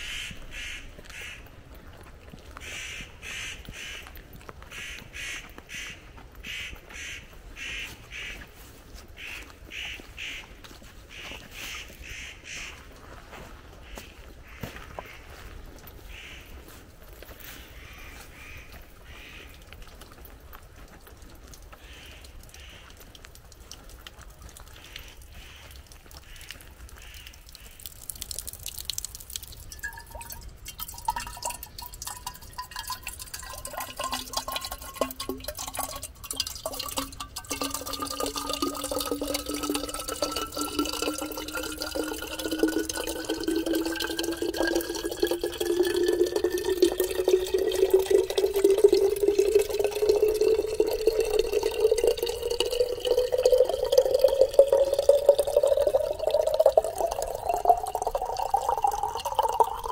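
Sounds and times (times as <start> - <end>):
water drips and splashes: 15.3 - 59.9
water pouring into container: 27.5 - 59.9.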